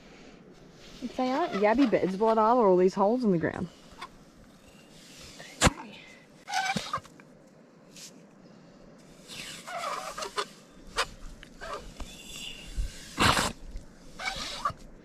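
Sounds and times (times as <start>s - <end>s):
hand pump sucking wet mud: 13.0s - 14.7s.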